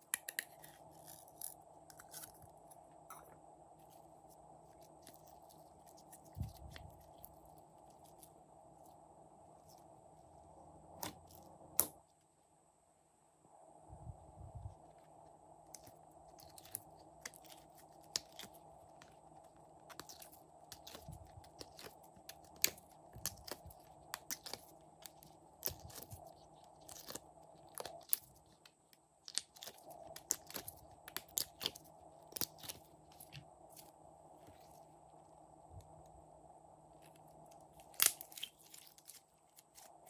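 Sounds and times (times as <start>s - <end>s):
faint steady hum: 0.0s - 40.0s
slime crackling and popping: 19.9s - 28.6s, 29.2s - 33.3s, 37.8s - 39.9s.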